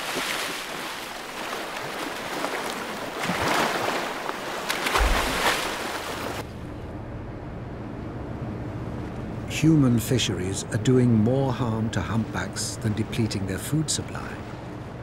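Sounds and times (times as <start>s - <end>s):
water splashing and churning: 0.0s - 6.5s
steady low hum: 4.9s - 15.0s.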